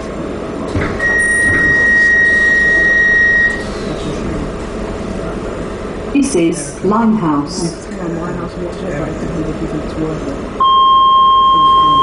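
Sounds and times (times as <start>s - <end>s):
low hum of train: 0.0s - 12.0s
high warning tone: 1.0s - 3.8s, 10.6s - 12.0s.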